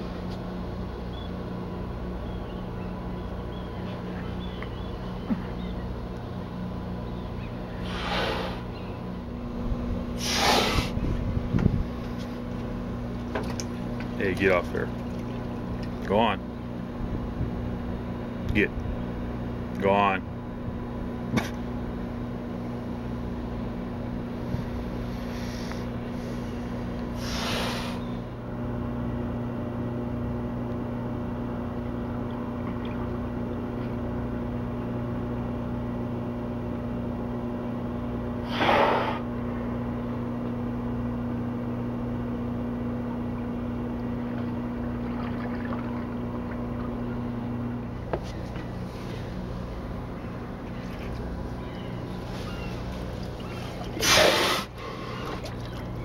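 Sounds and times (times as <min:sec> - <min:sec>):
low mechanical hum: 0:00.0 - 0:56.0
sea lion breathing: 0:07.7 - 0:08.8, 0:24.4 - 0:28.2, 0:52.0 - 0:55.7
sea lion snorting: 0:07.8 - 0:08.8, 0:10.2 - 0:11.0, 0:38.4 - 0:39.3, 0:52.1 - 0:55.9.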